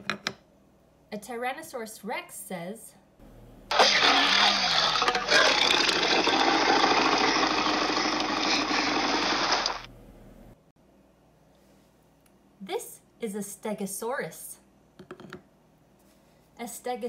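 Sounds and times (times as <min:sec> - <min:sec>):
dinosaur roar: 0:03.7 - 0:09.8.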